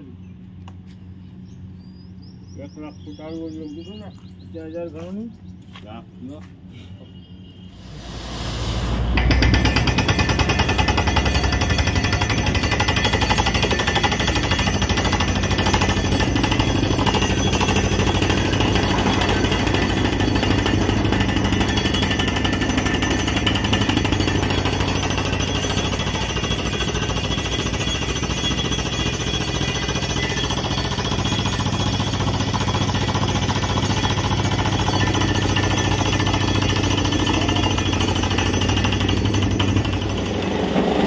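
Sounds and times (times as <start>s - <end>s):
rig engine and compressor: 0.0s - 41.0s
compressed air blasting: 7.7s - 10.0s
air hammer pounding rock: 7.9s - 41.0s.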